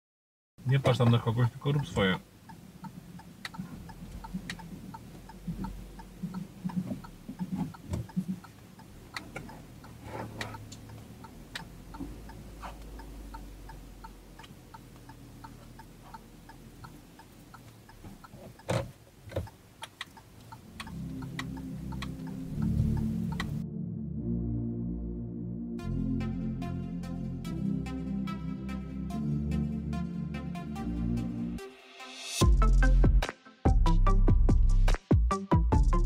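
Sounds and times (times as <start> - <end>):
turn signal ticking: 0.6 - 23.6
low engine hum: 1.7 - 24.4
music: 20.6 - 36.0.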